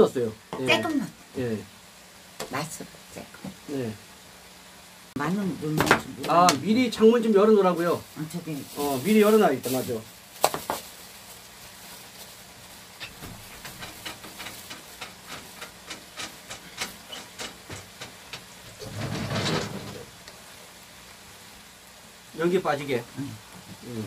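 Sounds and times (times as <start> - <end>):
food sizzling in a frying pan: 0.0 - 24.0
pops and crackles: 10.4 - 10.9.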